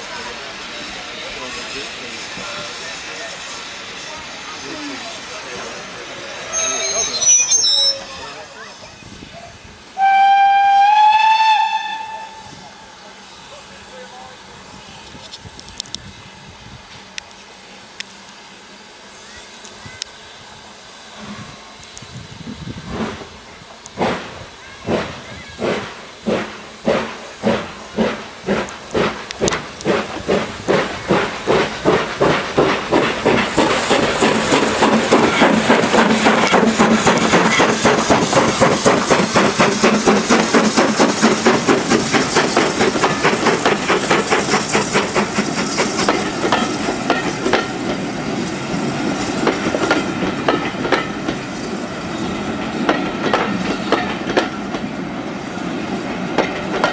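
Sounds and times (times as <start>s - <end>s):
hiss of steam: 0.0s - 56.9s
steam locomotive chuffing: 0.0s - 56.9s.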